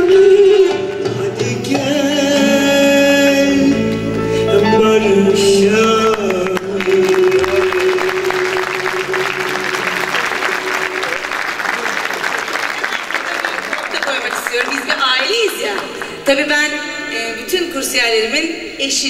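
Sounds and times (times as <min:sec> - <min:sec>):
ud playing: 0:01.0 - 0:11.6
audience applause: 0:05.9 - 0:16.3.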